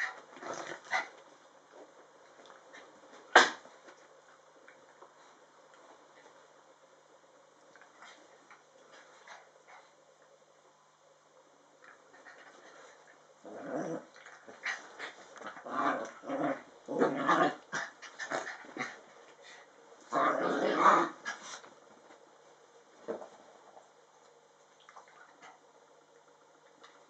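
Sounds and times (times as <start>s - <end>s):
small dogs growling: 0.0s - 1.2s, 12.1s - 21.6s.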